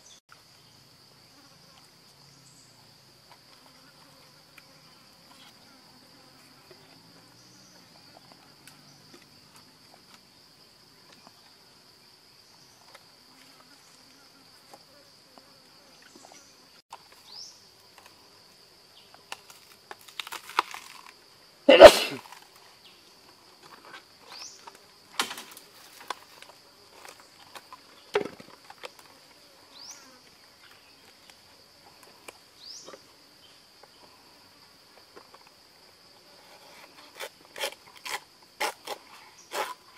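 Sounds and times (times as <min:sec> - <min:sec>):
insect chirps: 0:00.0 - 0:39.9
insects buzzing: 0:00.0 - 0:39.9
rustles and small knocks: 0:22.2 - 0:29.4.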